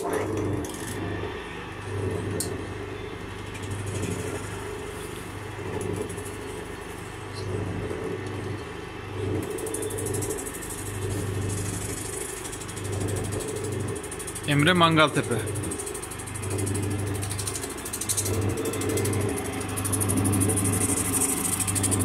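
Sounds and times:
lathe motor humming: 0:09.2 - 0:22.0.

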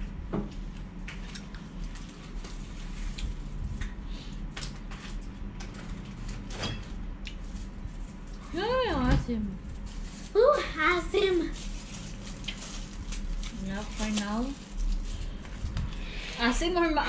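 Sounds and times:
steady low hum: 0:00.0 - 0:17.0
food packaging rustling: 0:09.7 - 0:16.9.

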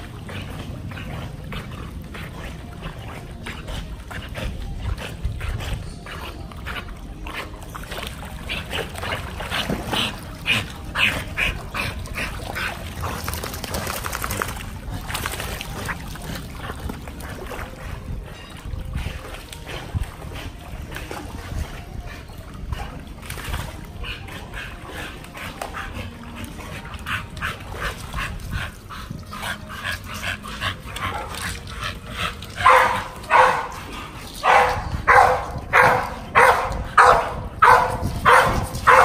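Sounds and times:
dog barking and yelping: 0:32.6 - 0:33.8, 0:34.4 - 0:39.0.

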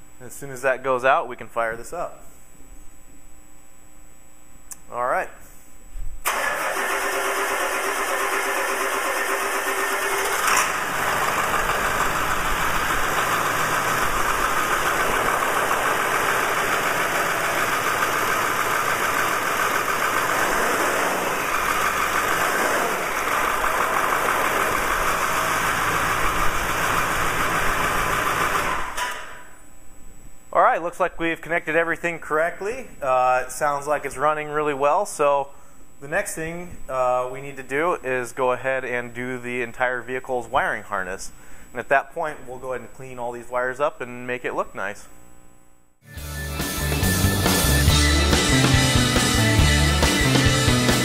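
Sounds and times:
diesel engine starting and running: 0:06.2 - 0:29.6, 0:46.1 - 0:51.0.

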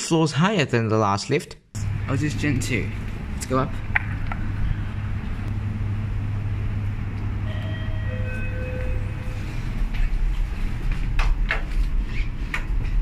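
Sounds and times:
low lift hum: 0:01.8 - 0:13.0
sliding lift doors: 0:02.9 - 0:13.0
sharp clicks and knocks: 0:03.9 - 0:04.5
lift chime: 0:07.4 - 0:09.8.

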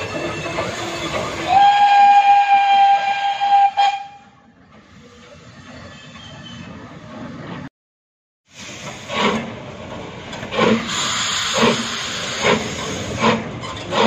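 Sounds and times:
locomotive horn: 0:01.4 - 0:04.4.

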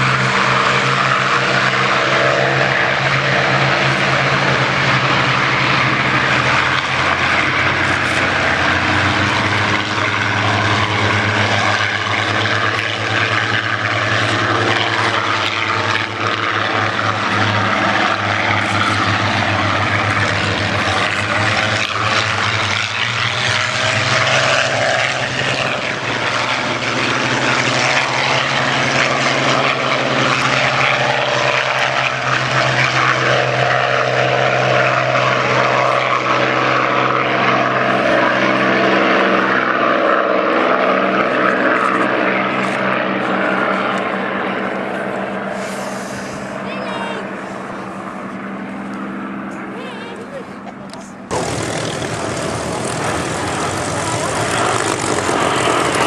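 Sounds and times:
propeller aircraft engines droning: 0:00.0 - 0:56.0.

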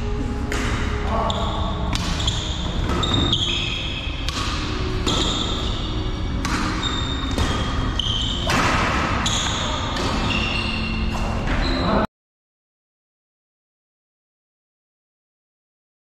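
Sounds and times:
racket hitting shuttlecock: 0:00.4 - 0:11.6
shoes squeaking on court floor: 0:00.5 - 0:12.1.

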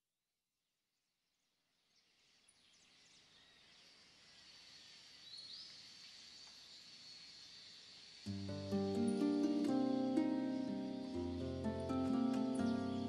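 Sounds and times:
bird chirps: 0:01.9 - 0:13.0
high insect drone: 0:02.7 - 0:13.0.

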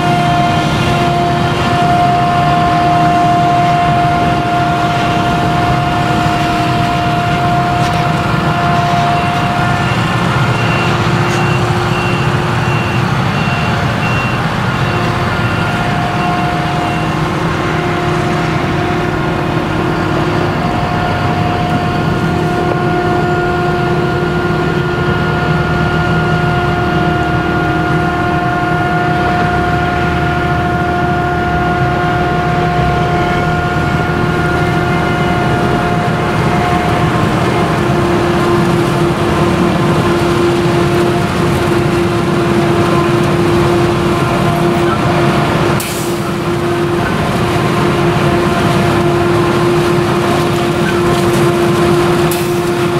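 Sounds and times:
forage harvester engine rumble: 0:00.0 - 0:52.9
machine whining tones: 0:00.0 - 0:52.9.

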